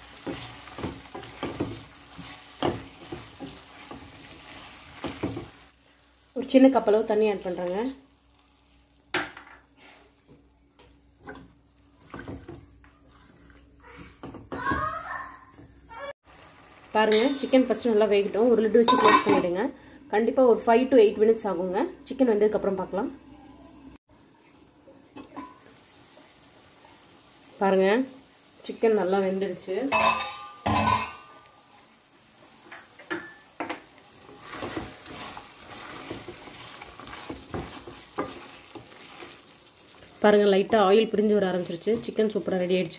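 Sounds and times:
spatula knocking and scraping pan: 0.0 - 5.7, 18.8 - 19.5, 29.9 - 31.4, 32.7 - 42.7
spatula stirring wet food: 0.0 - 6.3, 9.7 - 14.8, 31.8 - 42.9.

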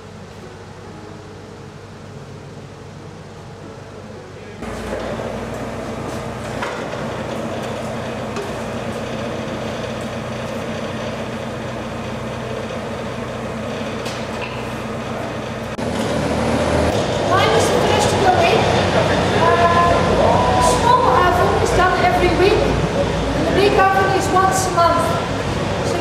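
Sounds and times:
machine humming and rumbling: 0.0 - 26.0.

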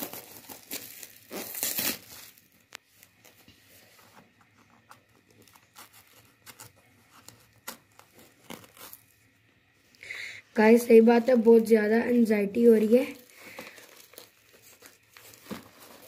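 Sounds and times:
plastic packaging crinkling: 0.0 - 3.4, 5.2 - 9.2, 10.6 - 16.0.

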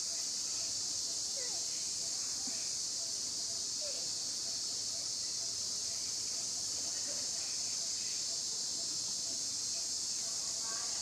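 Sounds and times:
insect chorus drone: 0.0 - 11.0.

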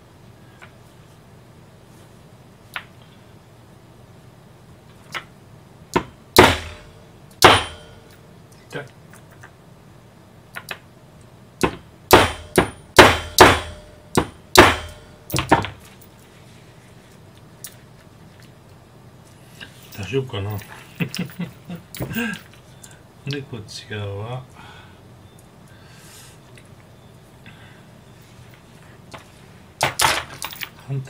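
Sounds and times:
hatchet striking metal snap: 6.0 - 8.2, 11.6 - 15.6.

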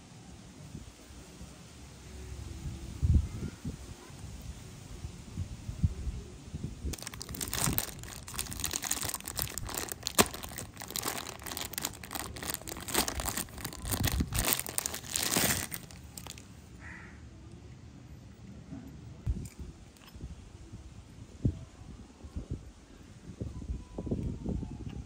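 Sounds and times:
plastic bag crinkling: 7.0 - 16.5.

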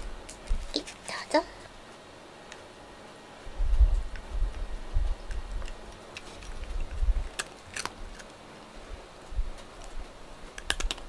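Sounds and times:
cat crunching dry kibble: 5.3 - 8.4, 9.8 - 11.0.

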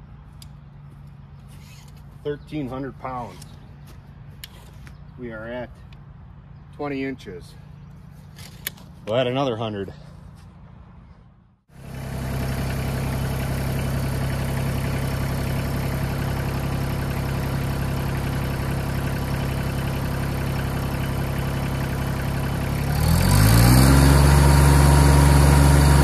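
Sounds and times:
tractor diesel engine running: 11.7 - 26.0.

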